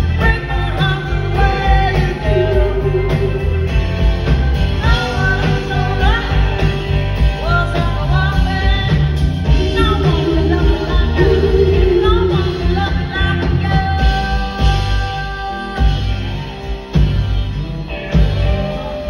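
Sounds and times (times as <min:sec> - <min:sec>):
woman singing: 0:00.0 - 0:03.6, 0:04.8 - 0:16.6
drum and bass beat: 0:00.0 - 0:14.8
electric guitar: 0:00.0 - 0:19.0.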